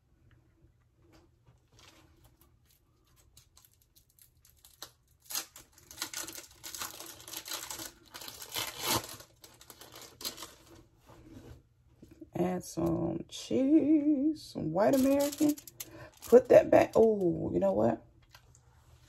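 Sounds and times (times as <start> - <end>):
plastic packaging crinkling: 1.6 - 11.0, 14.8 - 17.5.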